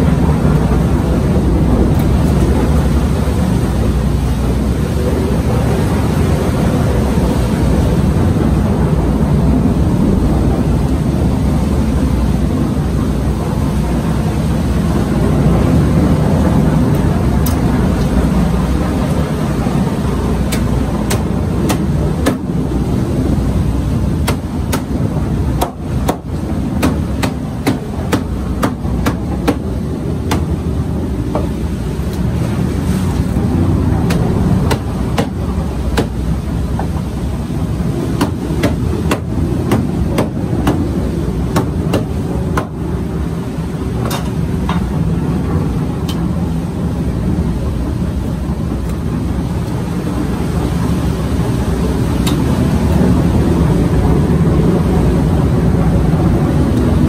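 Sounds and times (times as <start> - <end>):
steady low rumble: 0.0 - 57.0.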